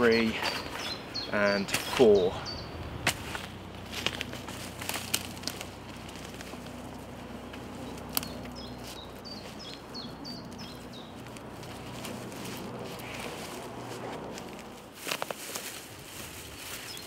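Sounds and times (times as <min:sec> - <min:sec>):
small songbird singing: 0:00.0 - 0:02.8, 0:07.8 - 0:11.4.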